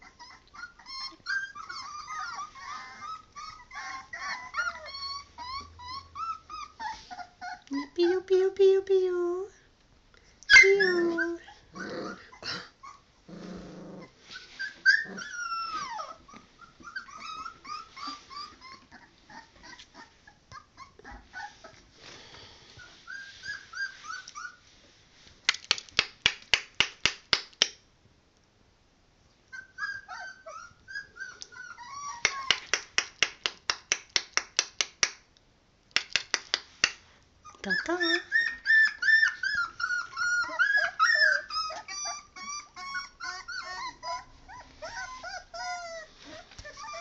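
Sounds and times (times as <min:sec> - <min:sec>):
puppies whining and yipping: 0:00.0 - 0:08.3, 0:10.4 - 0:22.0, 0:22.8 - 0:24.8, 0:29.5 - 0:32.9, 0:37.4 - 0:47.0
puppy low growl: 0:10.6 - 0:21.8, 0:37.5 - 0:47.0.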